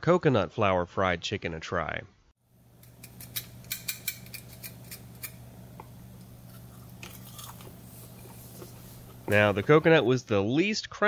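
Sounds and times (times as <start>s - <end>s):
low steady hum: 2.5s - 10.5s
crispy fried chicken crust crackling: 2.8s - 10.2s.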